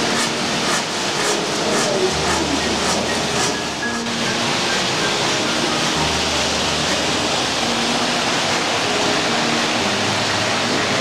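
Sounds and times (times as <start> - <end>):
metal wheels rattling on track: 0.0 - 5.3.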